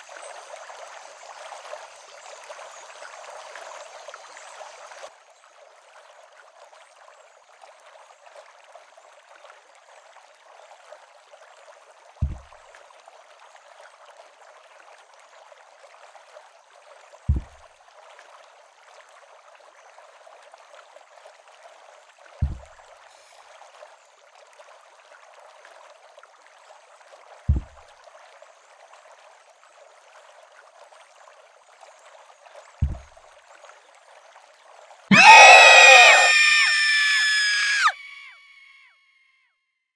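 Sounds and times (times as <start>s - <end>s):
deep thuds of footsteps: 12.2s - 12.5s, 17.3s - 17.6s, 22.4s - 22.7s, 27.5s - 27.8s, 32.8s - 33.0s
stream rushing: 35.1s - 38.2s.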